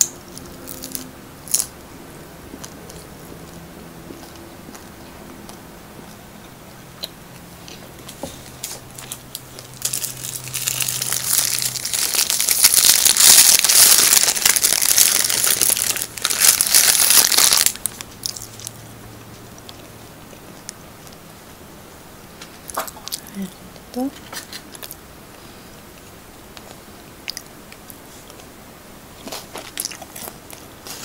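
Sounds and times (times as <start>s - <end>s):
paper bag crinkling and tearing: 8.8s - 18.6s.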